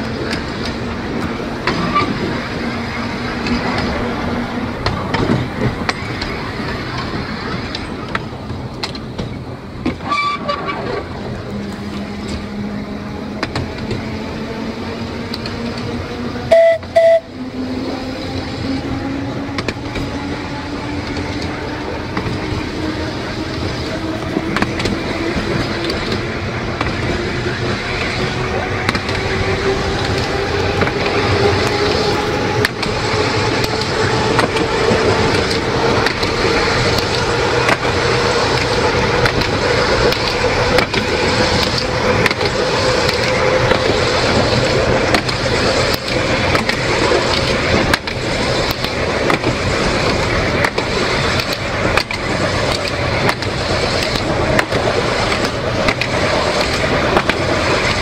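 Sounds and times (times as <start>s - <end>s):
tram motor whine: 0.0s - 58.0s
wheels clicking on track: 0.0s - 58.0s
horn toots: 16.5s - 17.3s.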